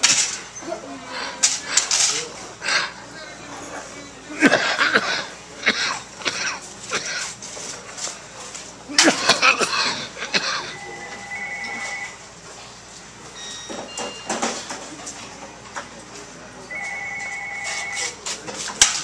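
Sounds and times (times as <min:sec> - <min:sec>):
voices: 0:00.0 - 0:19.0
telephone ringing: 0:10.7 - 0:12.2, 0:16.7 - 0:18.2.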